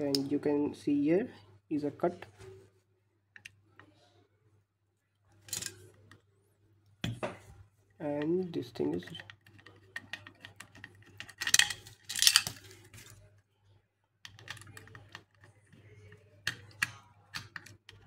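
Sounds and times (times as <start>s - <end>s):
screwdriver clicking and scraping metal: 5.5s - 6.1s, 8.2s - 13.2s, 14.2s - 18.0s.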